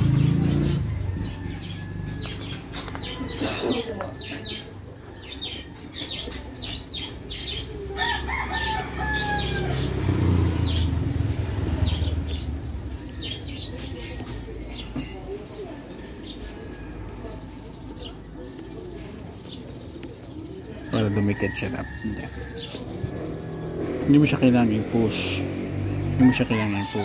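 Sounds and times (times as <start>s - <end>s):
rooster crowing: 7.9s - 10.0s, 26.2s - 27.0s.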